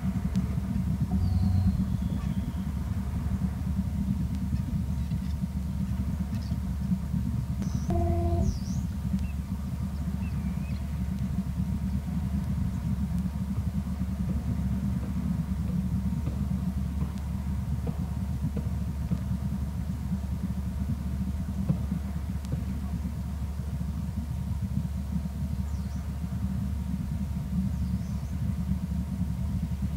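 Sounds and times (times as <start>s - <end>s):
steady low rumble: 0.9s - 8.9s
faint high chirp: 7.9s - 8.8s.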